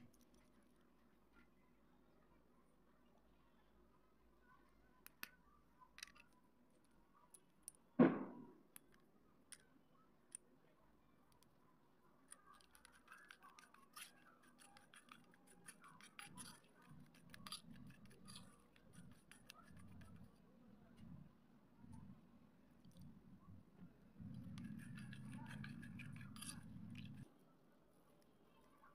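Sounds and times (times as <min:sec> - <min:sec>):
slate pencils snapping: 0:12.3 - 0:20.3, 0:24.4 - 0:27.2.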